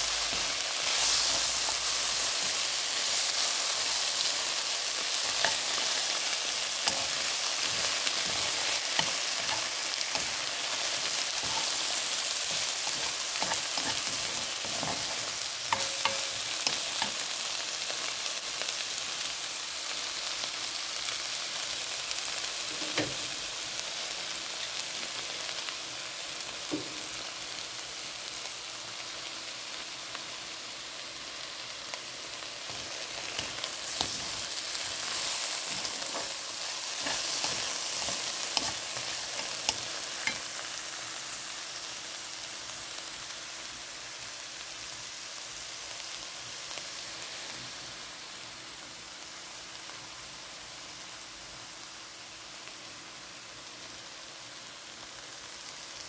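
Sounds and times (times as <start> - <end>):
mushrooms sizzling in a frying pan: 0.0 - 56.0
spatula scraping a pan: 5.1 - 17.2, 32.7 - 40.6.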